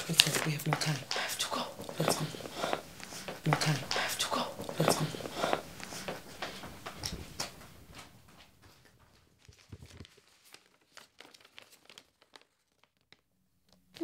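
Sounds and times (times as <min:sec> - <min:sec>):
faint footsteps: 0:00.0 - 0:10.3.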